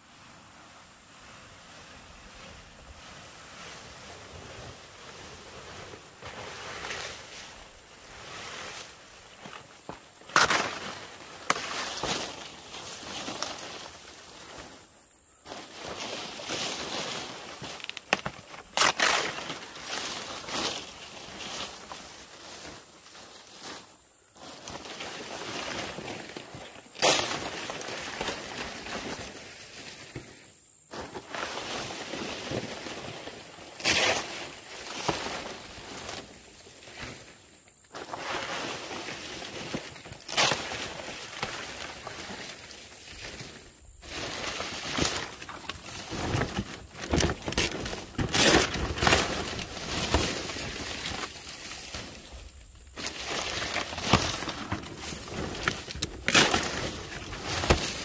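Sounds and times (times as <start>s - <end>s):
palm leaves rustling: 0.0s - 58.0s
leaves slapping when dropped: 10.2s - 14.3s, 15.5s - 22.6s, 24.6s - 30.3s, 37.9s - 58.0s.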